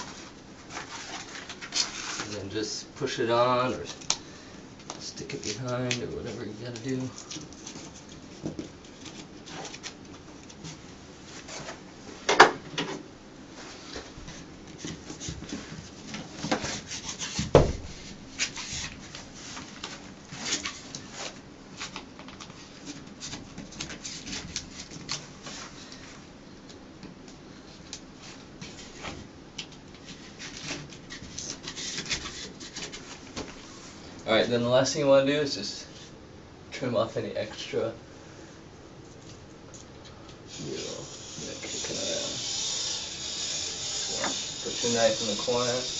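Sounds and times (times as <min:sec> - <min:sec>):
rubbing and scraping vinyl: 0:00.0 - 0:02.7, 0:12.9 - 0:26.2, 0:30.0 - 0:34.1, 0:40.6 - 0:45.9.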